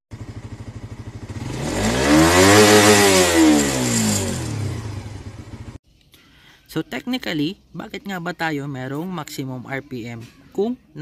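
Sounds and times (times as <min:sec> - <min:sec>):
motorcycle engine revving: 0:00.1 - 0:05.8.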